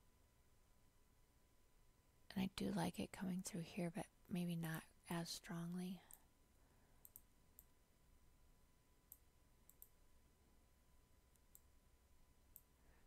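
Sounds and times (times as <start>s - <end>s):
quiet steady hum: 0.0s - 13.0s
computer mouse clicks: 7.0s - 7.7s, 9.1s - 10.0s, 11.3s - 11.7s.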